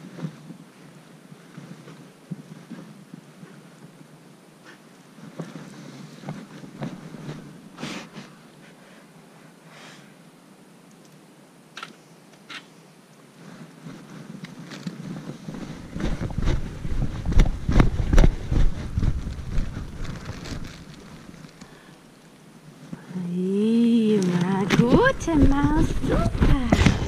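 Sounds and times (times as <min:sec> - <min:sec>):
clothing rustling: 0:00.0 - 0:09.4, 0:13.3 - 0:21.9, 0:24.2 - 0:27.0
wind buffeting microphone: 0:15.5 - 0:21.4, 0:24.4 - 0:27.0.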